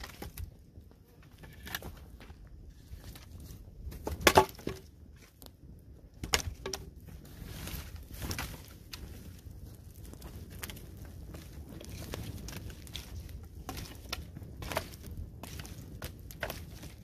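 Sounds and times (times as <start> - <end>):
rustling twigs and dry grass: 0.0 - 17.0
wooden logs knocking: 3.9 - 5.3, 6.2 - 7.0.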